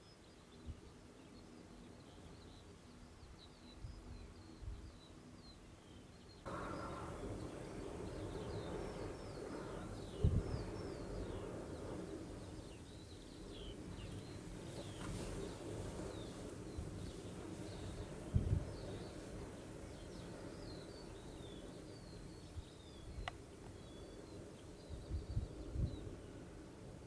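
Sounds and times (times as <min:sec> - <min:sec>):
small birds singing: 0:00.0 - 0:27.0
wind noise on microphone: 0:06.5 - 0:27.0.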